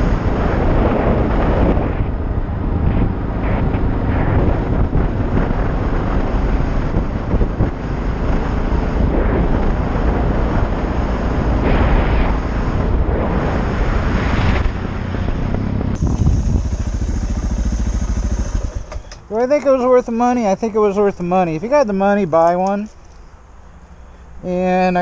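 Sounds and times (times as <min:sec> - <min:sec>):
wind buffeting microphone: 0:00.0 - 0:21.9
motorcycle engine running: 0:15.0 - 0:19.3.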